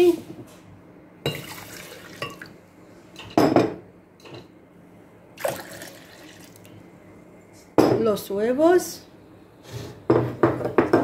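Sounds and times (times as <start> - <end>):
milk pouring into glass jug: 5.4 - 6.7
glassware knocking on wooden table: 10.1 - 11.0.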